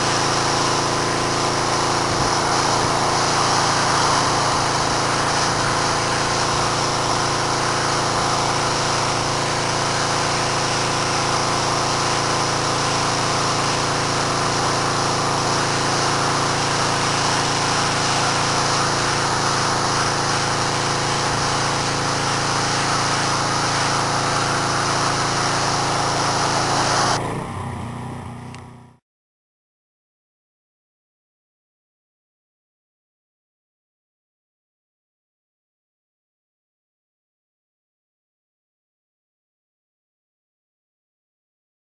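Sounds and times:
high-pressure water jet hissing: 0.0s - 27.2s
pressure washer engine running: 0.0s - 29.0s.

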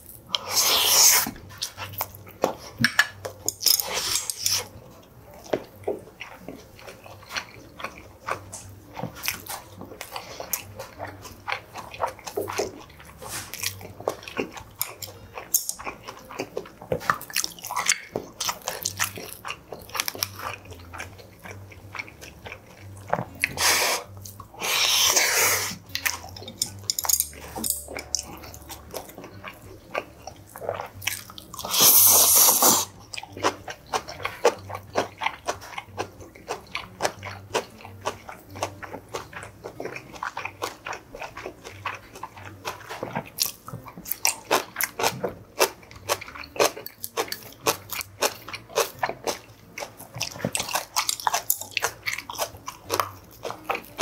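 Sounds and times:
close chewing and biting: 0.0s - 54.0s.

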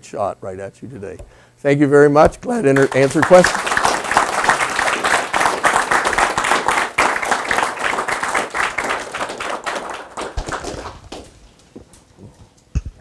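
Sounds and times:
audience applauding: 2.7s - 11.3s.

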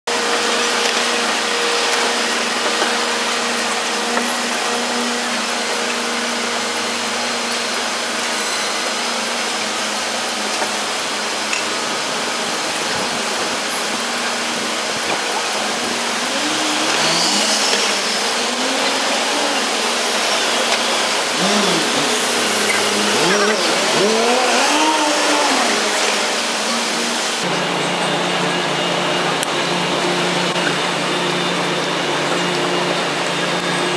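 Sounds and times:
construction and traffic din: 0.1s - 33.9s
diesel engine hum: 9.3s - 33.9s
wavering pitched sounds: 14.2s - 27.7s.

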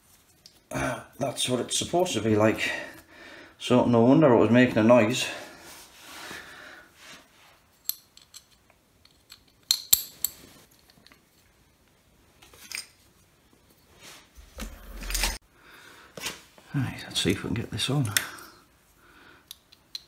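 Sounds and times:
metallic clicks and clinks: 7.8s - 11.2s
rustling scrape: 13.8s - 15.4s.

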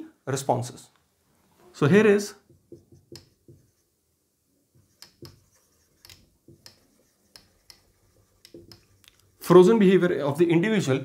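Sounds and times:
marker pen writing on a whiteboard: 2.4s - 4.0s, 4.7s - 9.6s.

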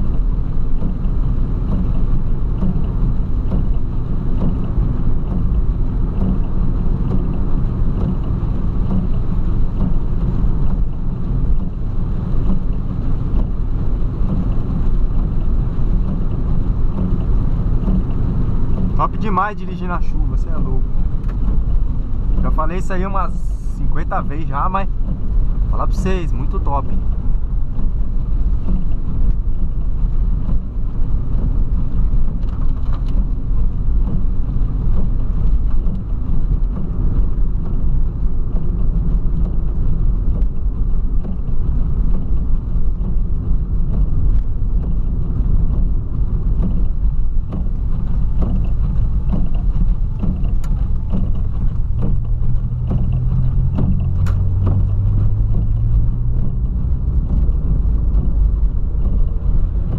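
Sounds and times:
car engine and tyres rumbling: 0.0s - 59.9s
engine note rising: 50.6s - 59.9s.

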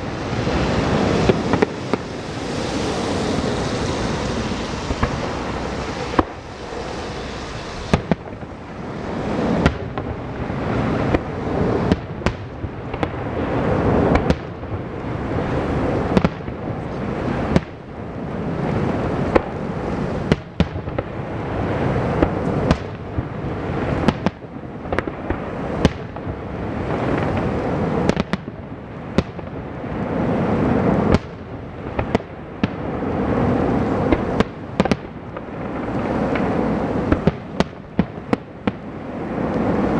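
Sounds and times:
firework shells bursting: 0.0s - 13.1s
continuous rumble: 0.0s - 39.9s.

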